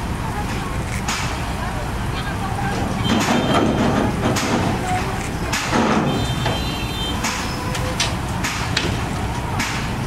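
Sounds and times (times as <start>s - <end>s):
crane diesel engine under load: 0.0s - 10.0s
sharp metallic knocks: 3.0s - 4.8s, 5.4s - 10.0s.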